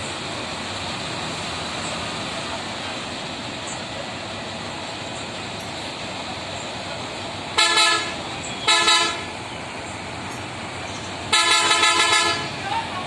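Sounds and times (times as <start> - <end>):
background traffic noise: 0.0 - 13.0
vehicle horn honking: 7.6 - 9.3, 11.3 - 12.6.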